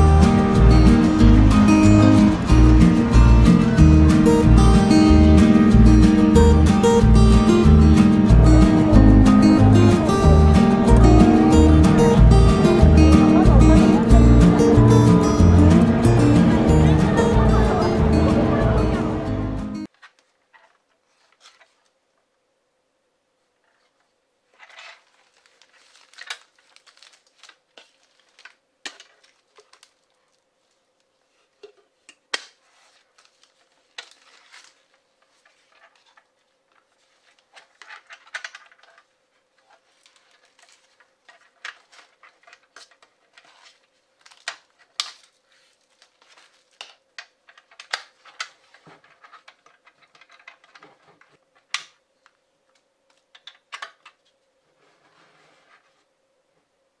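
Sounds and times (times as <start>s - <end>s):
soft handling rustle: 19.8s - 22.3s, 23.4s - 53.4s, 54.2s - 56.7s.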